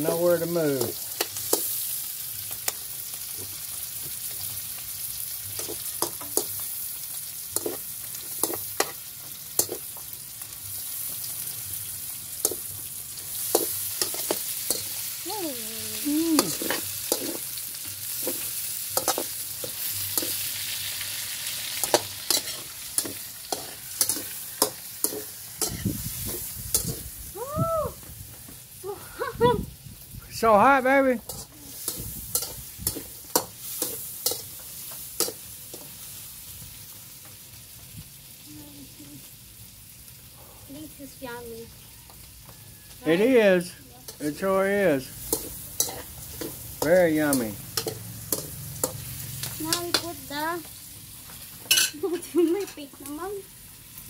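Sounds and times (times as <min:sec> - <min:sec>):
food sizzling in oil: 0:00.0 - 0:54.0
metal spatula scraping a pan: 0:16.4 - 0:27.1, 0:31.2 - 0:35.9, 0:45.2 - 0:50.0.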